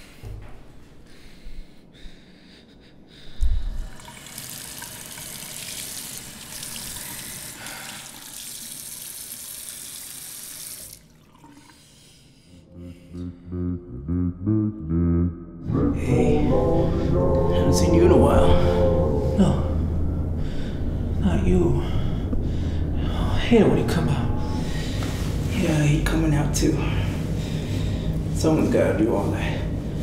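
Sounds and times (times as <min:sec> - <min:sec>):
water running from sink faucet: 0:03.8 - 0:11.7.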